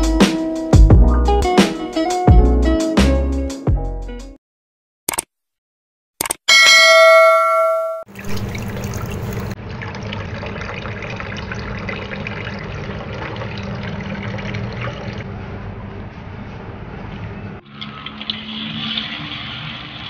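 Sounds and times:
bright chime ringing: 0:06.5 - 0:08.4.

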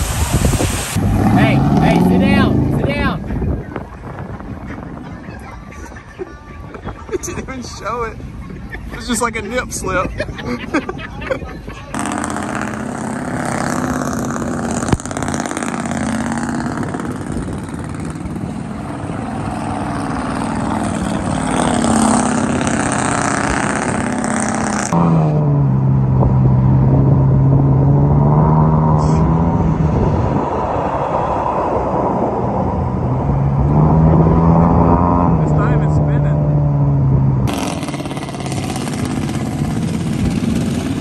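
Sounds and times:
truck engines revving: 0:00.0 - 0:41.0
tyres churning through mud: 0:37.5 - 0:41.0.

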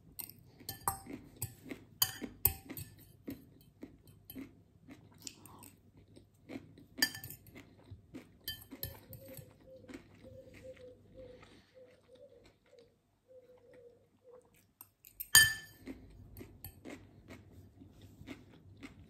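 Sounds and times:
chewing and crunching: 0:00.0 - 0:19.0
fork clinking against glass bowl: 0:00.2 - 0:03.1, 0:07.0 - 0:07.5, 0:08.5 - 0:09.6, 0:15.1 - 0:15.9.

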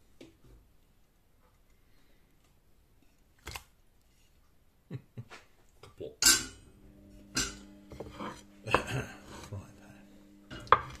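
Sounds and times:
frying pan and utensils clattering: 0:06.2 - 0:06.6, 0:07.3 - 0:09.2
steady low hum: 0:06.2 - 0:11.0.

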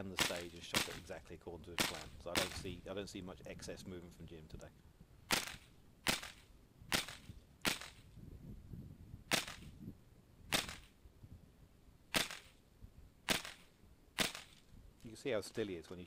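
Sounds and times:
rifle shots with ringing: 0:00.1 - 0:01.1, 0:01.8 - 0:02.8, 0:05.3 - 0:08.0, 0:09.3 - 0:09.7, 0:10.5 - 0:11.0, 0:12.1 - 0:12.6, 0:13.3 - 0:14.6.

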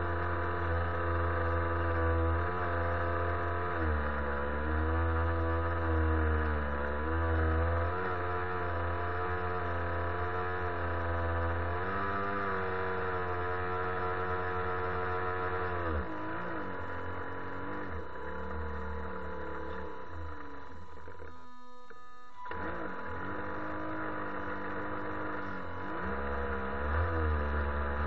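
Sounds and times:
model boat motor running: 0:13.7 - 0:28.0.

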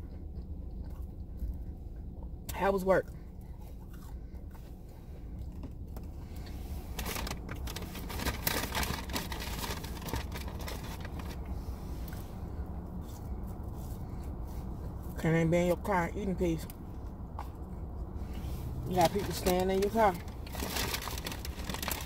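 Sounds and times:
chewing: 0:00.0 - 0:15.2
low hum inside car: 0:00.0 - 0:22.0
jacket and packaging rustling: 0:06.9 - 0:11.4, 0:18.9 - 0:22.0.

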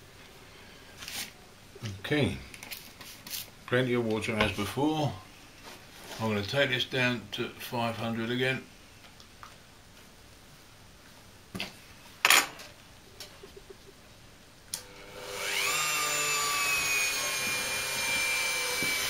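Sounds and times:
rotary tool whining: 0:14.8 - 0:19.0.

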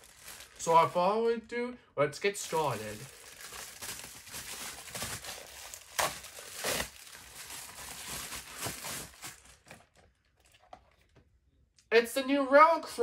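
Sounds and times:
plastic mailer ripping: 0:00.0 - 0:00.9, 0:02.5 - 0:10.0
plastic mailer crinkling: 0:00.0 - 0:01.1, 0:02.4 - 0:10.9.

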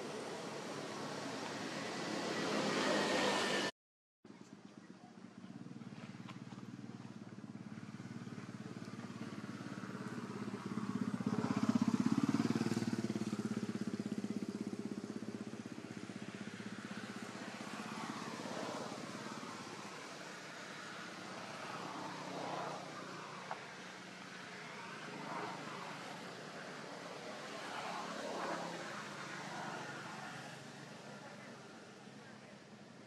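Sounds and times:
motorcycle engine running: 0:04.8 - 0:18.2.

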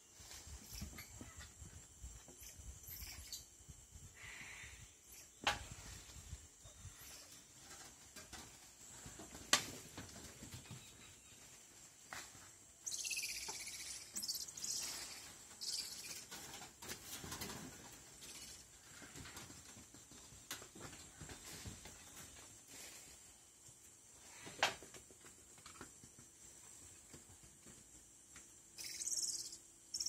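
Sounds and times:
high insect hum: 0:00.0 - 0:30.0
leaves and branches rustling: 0:05.6 - 0:24.5
loud high chirring: 0:28.8 - 0:30.0.

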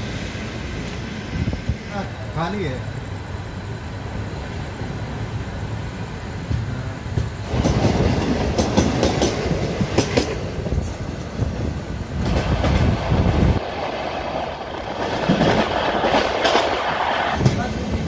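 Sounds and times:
train rushing past: 0:00.0 - 0:18.0
train wheels clacking over rail joints: 0:06.4 - 0:18.0.

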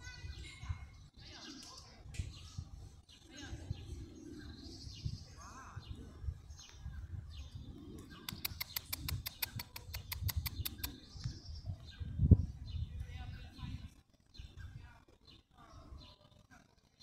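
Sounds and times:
birds chirping and calling: 0:00.0 - 0:17.0
rapid sharp ticks: 0:08.2 - 0:11.0.

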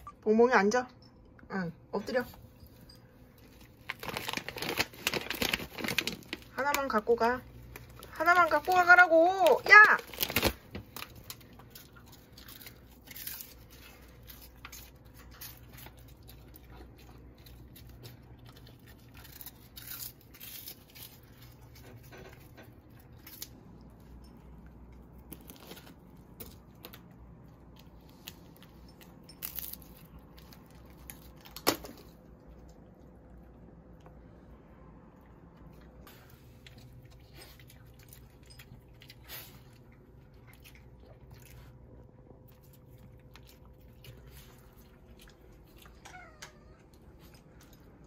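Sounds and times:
plastic bag crinkling: 0:03.4 - 0:16.5.

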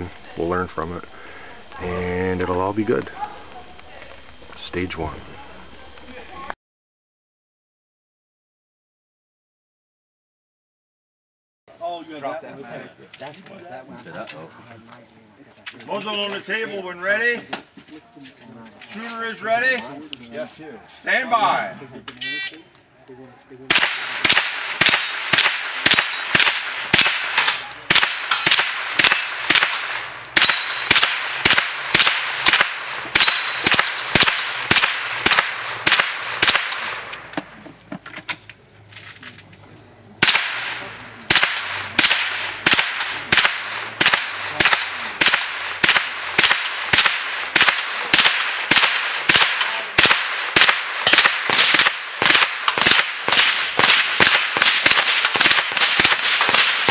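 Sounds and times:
rifle shots: 0:23.7 - 0:37.3, 0:40.2 - 0:56.9
steel plates ringing: 0:26.0 - 0:30.9.

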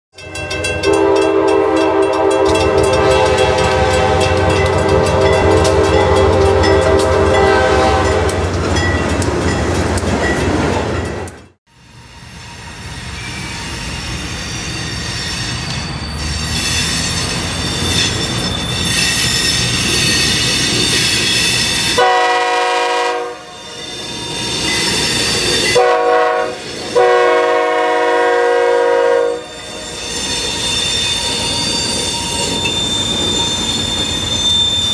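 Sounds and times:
high squealing of train wheels: 0:00.2 - 0:34.9
train rumbling: 0:00.2 - 0:34.9
train horn blowing: 0:00.8 - 0:08.5, 0:21.9 - 0:23.9, 0:25.6 - 0:29.6.

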